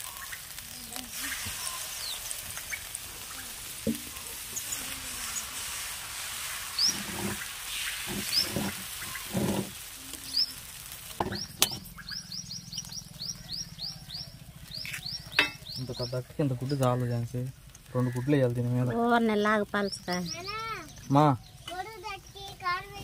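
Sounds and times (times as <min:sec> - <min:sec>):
batter sizzling on griddle: 0:00.0 - 0:23.0
small birds chirping: 0:00.0 - 0:23.0.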